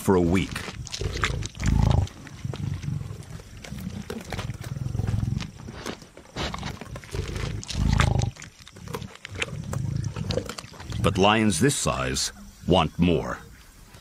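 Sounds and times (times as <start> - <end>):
lions growling: 0.0 - 12.6
chewing and tearing clicks: 0.3 - 11.0.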